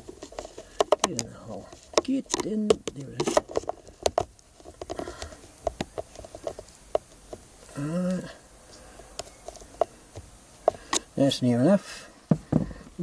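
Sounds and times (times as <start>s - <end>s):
man humming: 7.7s - 8.4s.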